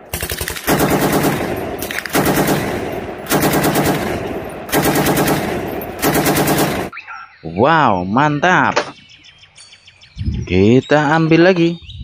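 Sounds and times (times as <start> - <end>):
machine-gun fire bursts: 0.0 - 6.9.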